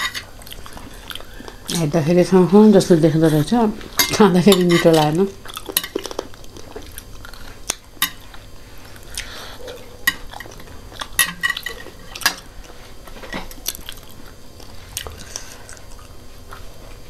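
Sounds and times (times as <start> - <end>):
quiet eating noises: 0.0 - 17.0
metal forks clinking on ceramic plates: 4.0 - 5.2.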